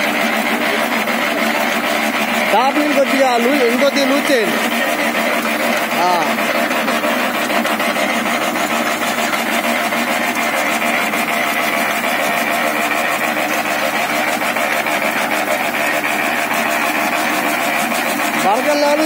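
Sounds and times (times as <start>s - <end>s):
machine drone with rattle: 0.0s - 19.0s.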